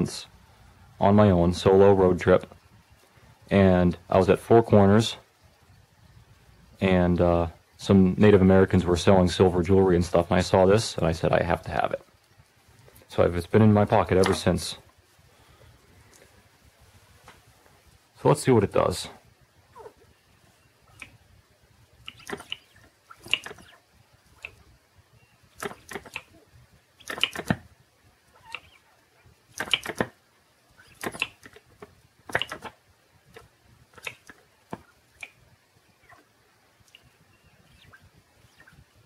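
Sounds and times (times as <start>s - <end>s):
small engine clicks and pops: 22.1s - 23.8s, 25.6s - 26.3s, 27.0s - 27.7s, 29.5s - 30.2s, 30.9s - 35.4s.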